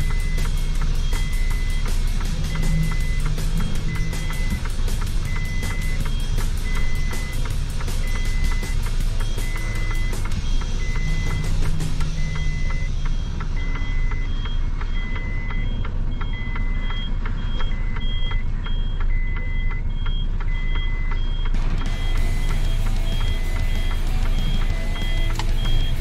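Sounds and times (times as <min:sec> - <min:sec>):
diesel engine running: 0:00.0 - 0:26.0
truck reversing alarm beeping: 0:00.0 - 0:26.0.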